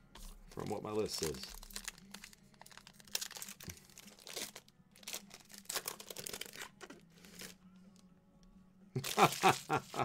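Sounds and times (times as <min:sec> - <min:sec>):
wrapper being torn and crinkled: 0:01.1 - 0:07.6, 0:09.0 - 0:10.0.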